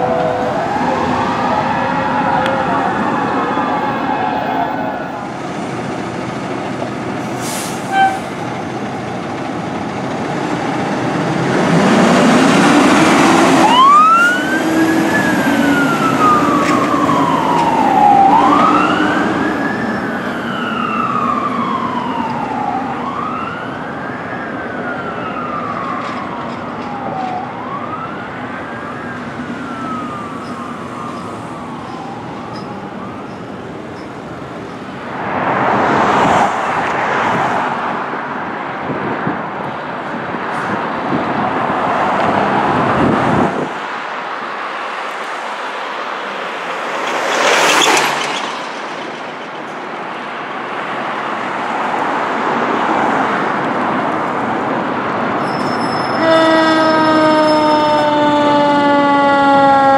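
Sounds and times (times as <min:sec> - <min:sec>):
truck engine: 0:00.0 - 0:23.4
fire truck siren wailing: 0:00.0 - 0:43.8, 0:50.1 - 0:59.9
road noise: 0:00.0 - 0:59.9.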